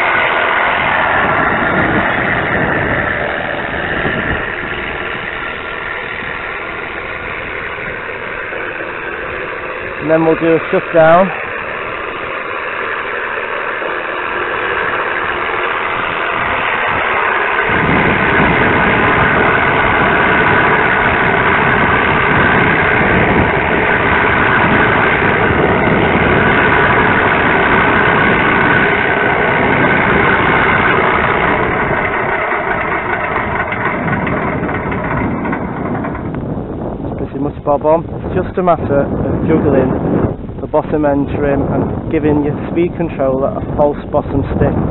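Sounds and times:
simulated piston engine: 0.0s - 39.7s.

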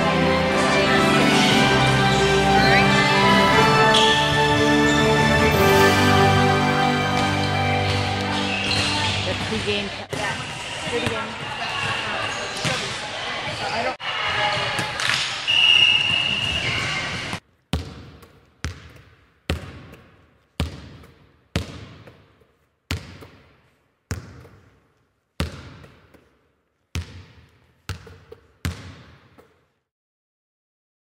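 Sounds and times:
gym voices: 0.0s - 17.4s.

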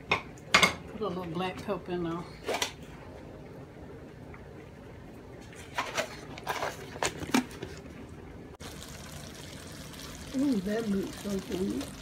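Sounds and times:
gravy bubbling in a pan: 8.6s - 12.0s.

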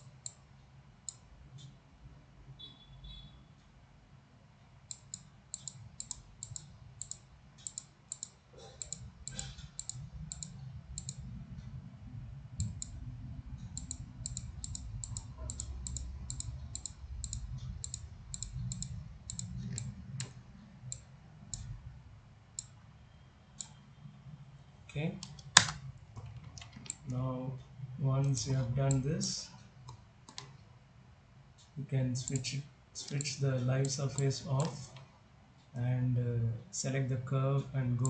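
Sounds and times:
low background hum: 0.0s - 38.0s
computer mouse button clicking: 4.9s - 11.2s, 13.8s - 21.7s.

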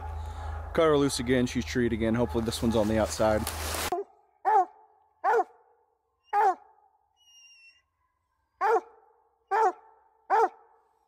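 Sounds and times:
hound barking: 3.9s - 5.7s, 6.3s - 6.8s, 8.6s - 10.8s.

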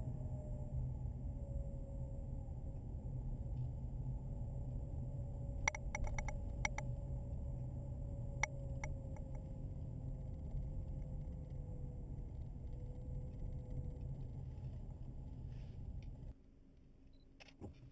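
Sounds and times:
sharp clicks or rattles: 5.7s - 6.8s.

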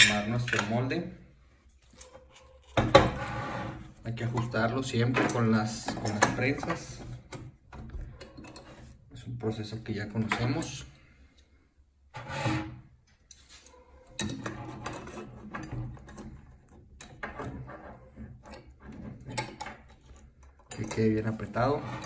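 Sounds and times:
clamp screws clicking and scraping: 13.3s - 22.0s.

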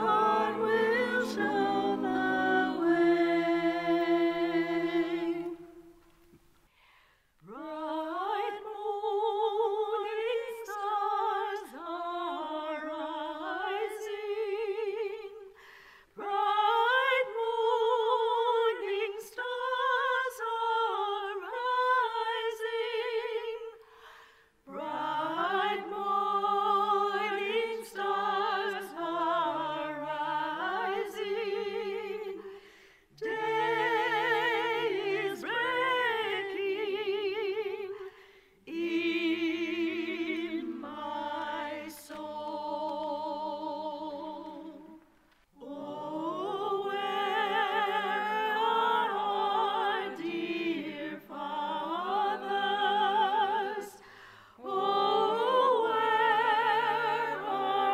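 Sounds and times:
person singing with vibrato: 0.0s - 5.7s.

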